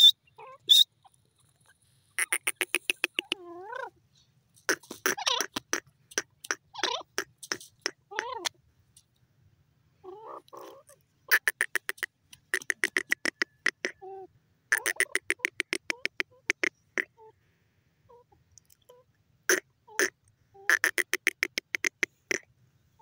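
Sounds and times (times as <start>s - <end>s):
francolin calling: 0.0s - 8.6s, 10.0s - 17.3s.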